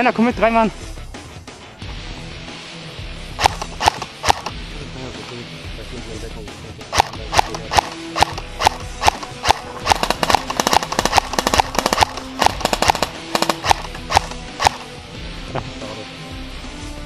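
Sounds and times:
faint background music: 0.0s - 17.0s
airsoft rifle shots clacking: 3.4s - 4.6s, 6.9s - 15.0s.

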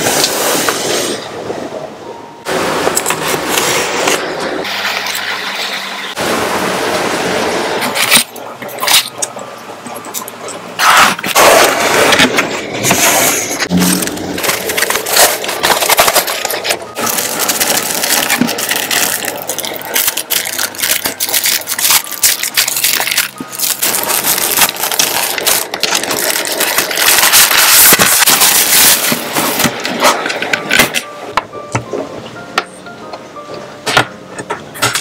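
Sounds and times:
plastic wrapping crinkling: 13.6s - 31.0s.

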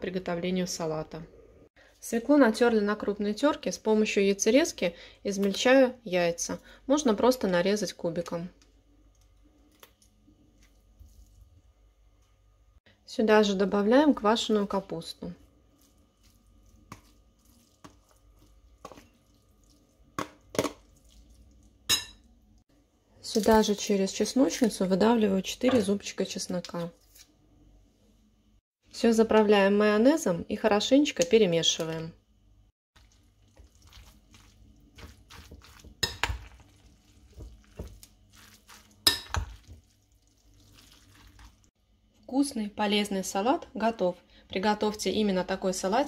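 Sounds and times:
spoon scraping salad in bowl: 33.0s - 39.8s.

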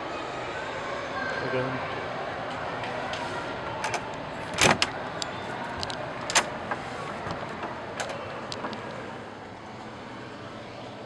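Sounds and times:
steady background noise: 0.0s - 11.0s
door handle and latch clicking: 3.8s - 9.0s.

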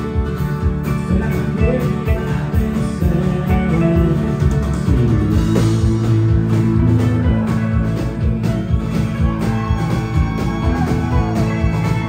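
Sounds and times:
bass: 0.0s - 12.0s
steady drum beat: 0.0s - 12.0s
strummed acoustic guitar: 0.0s - 12.0s
fiddle: 6.2s - 12.0s.

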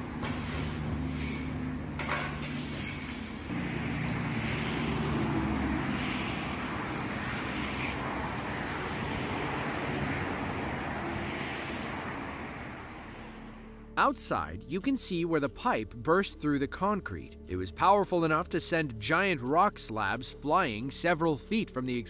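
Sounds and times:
shovels and brooms scraping mud: 0.0s - 13.5s.

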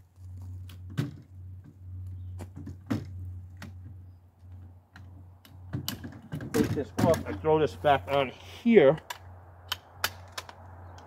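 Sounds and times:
rifle parts clicking and knocking: 4.4s - 7.5s, 9.0s - 11.0s.

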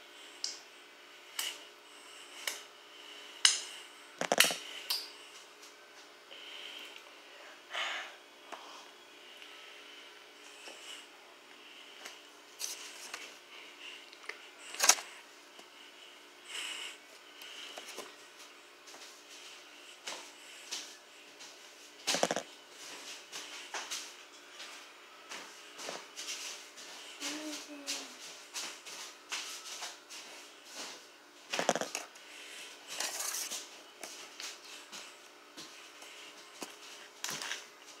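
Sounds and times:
rustling and handling noises: 12.0s - 15.9s, 16.7s - 38.0s
child moving and rustling: 25.7s - 31.0s.

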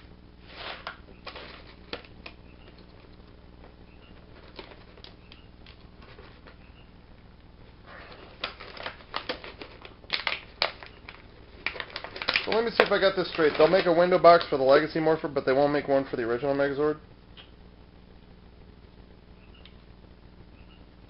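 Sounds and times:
plastic blister tray crackling: 0.7s - 6.6s, 7.9s - 15.0s.

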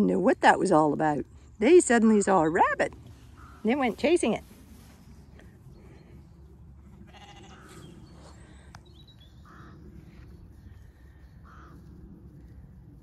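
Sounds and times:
steady low rumble: 0.0s - 13.0s
sheep bleating faintly: 7.1s - 7.8s.

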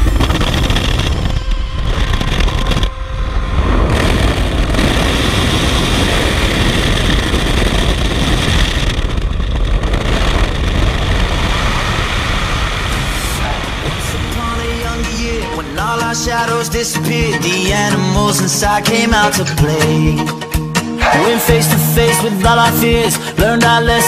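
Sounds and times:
aircraft engine drone: 0.0s - 17.8s
wind rushing: 0.0s - 17.8s, 21.0s - 22.6s.

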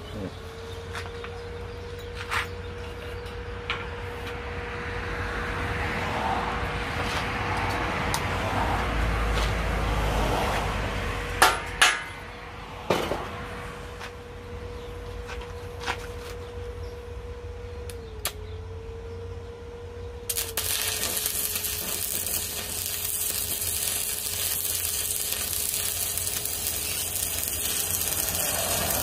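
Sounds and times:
sharp knocks on metal: 11.4s - 12.2s
welding arc crackling and hissing: 20.3s - 29.0s.

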